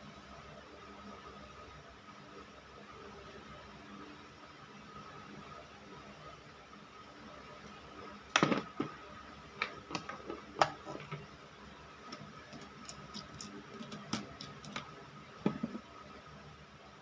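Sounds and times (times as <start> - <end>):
plastic parts clicking and knocking: 8.4 - 9.0, 9.6 - 11.2, 12.1 - 15.8.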